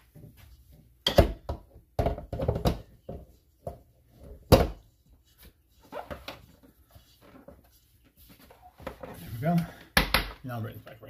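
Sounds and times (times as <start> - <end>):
metal mixer bowl knocks and thuds: 1.0 - 3.2.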